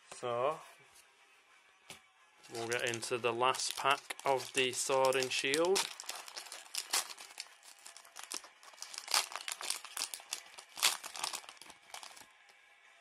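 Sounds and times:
foil wrapper crinkling and tearing: 2.5s - 12.3s.

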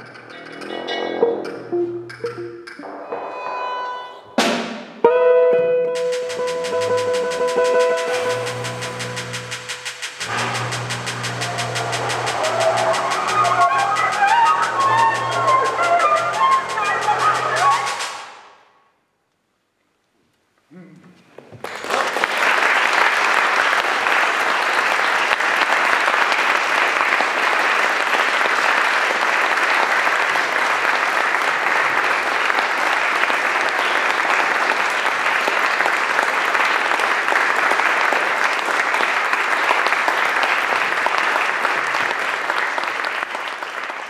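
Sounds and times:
audience applauding: 6.0s - 18.4s, 21.6s - 44.0s.

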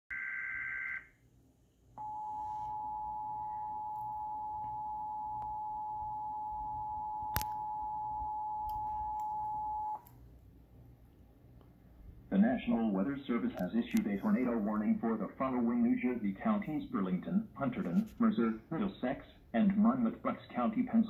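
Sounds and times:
two-tone attention signal: 0.1s - 1.0s, 2.0s - 10.0s.

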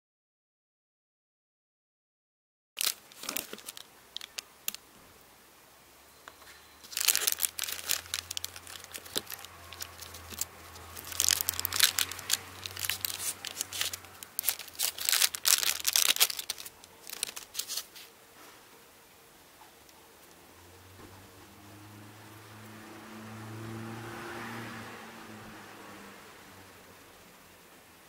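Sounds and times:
plastic bag crinkling: 2.8s - 4.8s, 6.8s - 18.1s.

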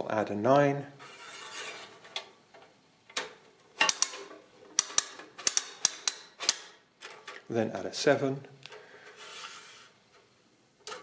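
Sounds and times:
adding machine metal clicks: 3.1s - 7.2s.

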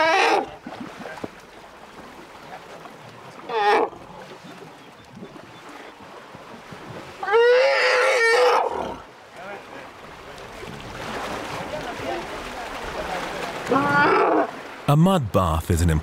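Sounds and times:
elephant trumpeting: 0.0s - 0.5s, 7.2s - 8.9s, 13.7s - 14.5s
water splashing and trickling: 0.0s - 14.9s.

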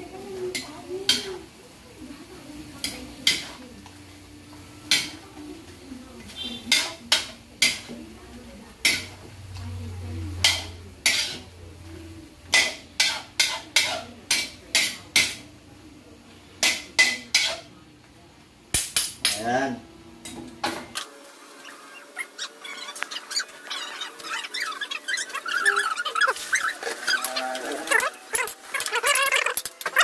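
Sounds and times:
metal ladle scraping a wok: 10.4s - 11.5s.

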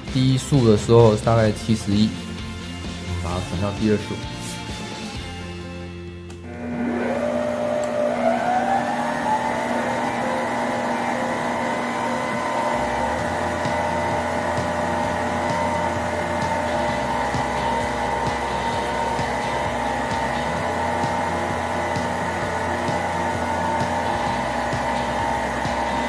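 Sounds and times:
stand mixer motor whine: 6.4s - 26.0s.

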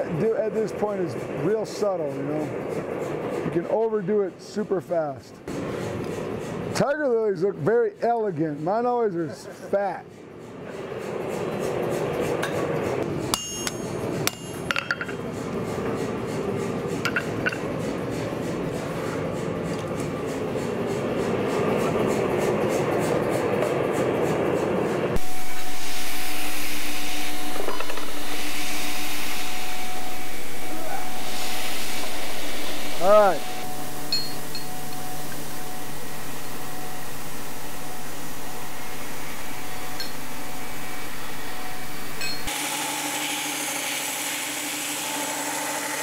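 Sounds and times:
rushing shop noise: 0.0s - 46.0s
motor hum: 23.3s - 46.0s.

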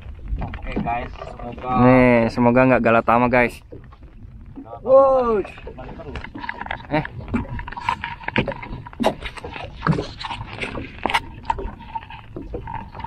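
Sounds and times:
water lapping against boat hull: 0.0s - 13.0s
short knocks and splashes: 3.4s - 13.0s.

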